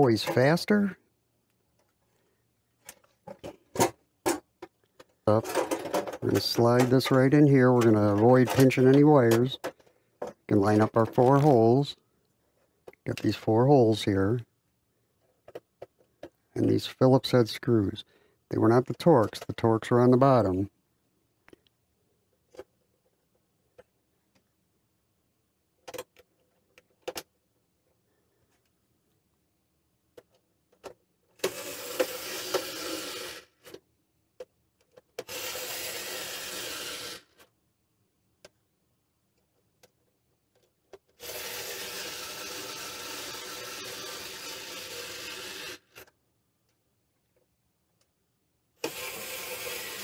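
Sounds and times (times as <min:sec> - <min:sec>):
electric screwdriver motor running: 0:31.4 - 0:33.5, 0:35.3 - 0:37.4, 0:41.2 - 0:46.0, 0:48.8 - 0:50.0.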